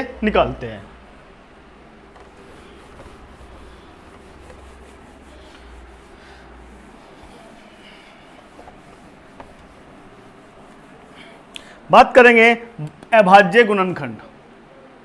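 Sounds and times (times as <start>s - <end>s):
cloth rubbing on whiteboard: 2.1s - 11.5s.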